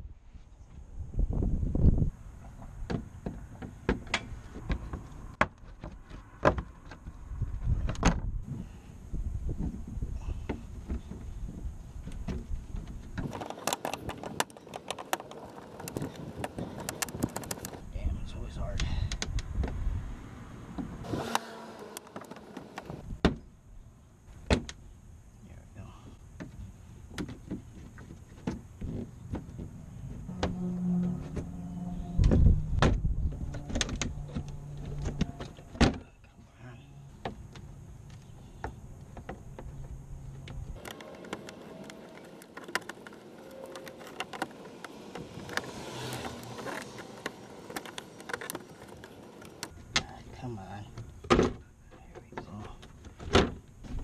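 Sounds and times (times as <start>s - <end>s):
plastic scraping and clicking: 12.1s - 17.8s, 40.5s - 50.1s
low hum: 29.6s - 51.9s.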